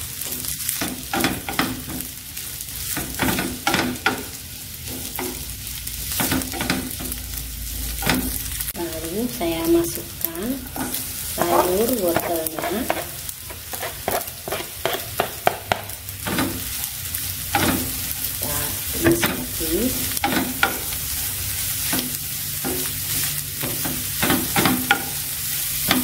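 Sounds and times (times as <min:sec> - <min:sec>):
food sizzling in a frying pan: 0:00.0 - 0:26.0
spatula scraping a pan: 0:10.6 - 0:26.0.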